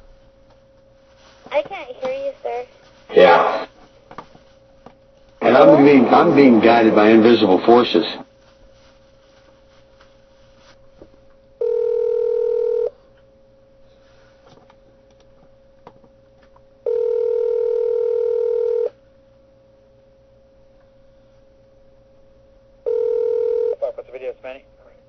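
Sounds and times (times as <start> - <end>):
telephone ringback tone: 11.6 - 12.9, 16.8 - 18.9, 22.8 - 23.8.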